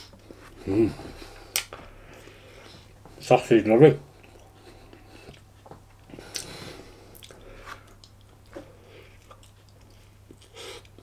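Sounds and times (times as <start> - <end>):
chewing mouth sounds: 6.2 - 11.0.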